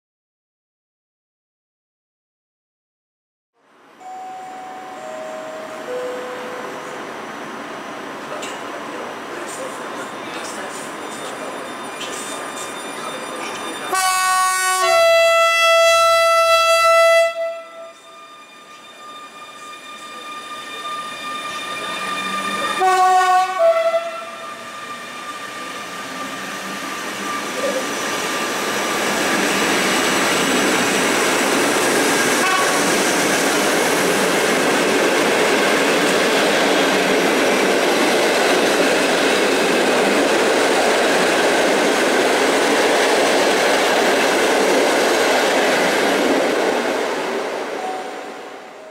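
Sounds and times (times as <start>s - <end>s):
train coaches rolling past: 3.7s - 48.9s
train horn blast: 13.9s - 18.1s, 22.8s - 24.6s, 32.4s - 33.0s.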